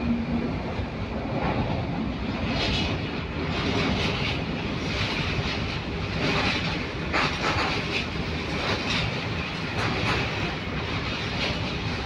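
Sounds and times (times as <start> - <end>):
freight train wagons rolling past: 0.0 - 12.0
wheels clattering over track: 3.6 - 12.0.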